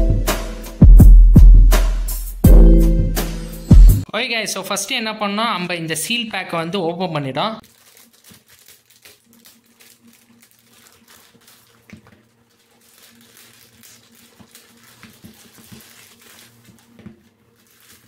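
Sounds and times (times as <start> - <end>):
plastic bag rustling: 7.6 - 18.0.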